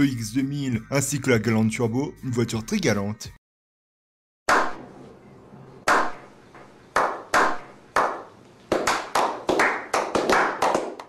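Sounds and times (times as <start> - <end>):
hand claps: 5.9 - 11.0.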